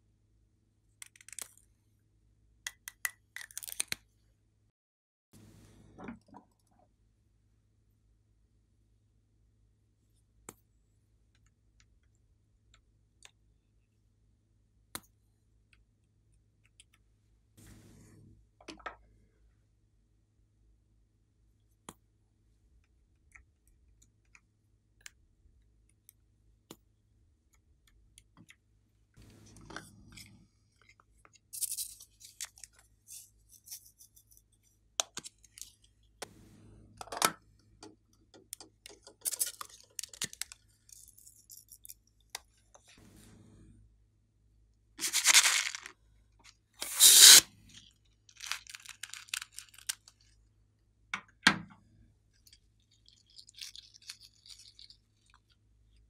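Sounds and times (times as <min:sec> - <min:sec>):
squishy toy crackling: 0:45.0 - 0:45.9, 0:46.8 - 0:47.4.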